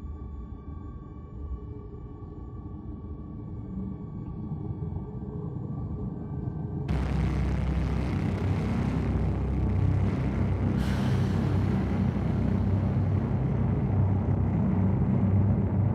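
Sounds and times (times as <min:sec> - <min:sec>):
loud low rumble: 0:06.9 - 0:15.9.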